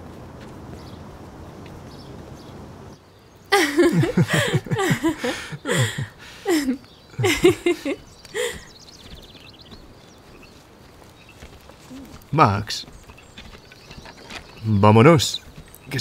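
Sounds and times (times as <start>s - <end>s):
people laughing and calling out: 3.5s - 8.7s.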